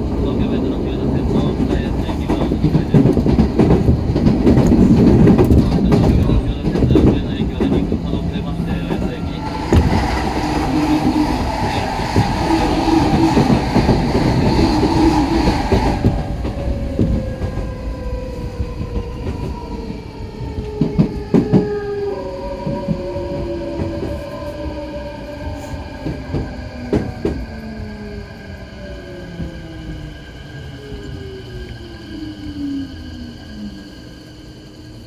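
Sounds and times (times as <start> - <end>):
train rushing past: 0.0 - 35.0.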